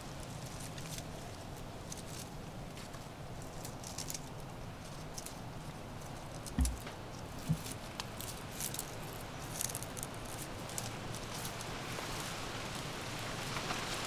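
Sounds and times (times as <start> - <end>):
faint outdoor hiss: 0.0 - 14.0
light crackles and ticks: 6.0 - 14.0
dull low thumps: 6.6 - 7.7.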